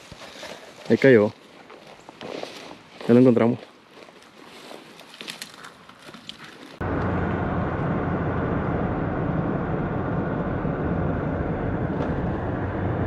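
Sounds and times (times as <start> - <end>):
road and engine noise in cabin: 6.8 - 13.0.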